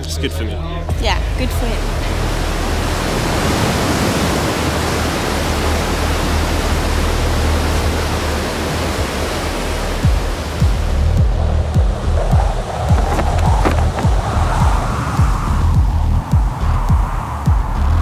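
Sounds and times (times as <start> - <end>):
storm wind rushing: 11.2 - 17.8
surf: 11.7 - 15.5.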